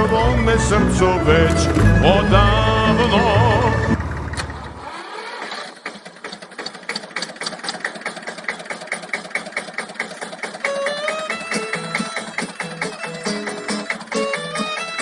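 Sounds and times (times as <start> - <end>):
violin playing: 0.0 - 4.8
tractor engine idling: 0.0 - 15.0.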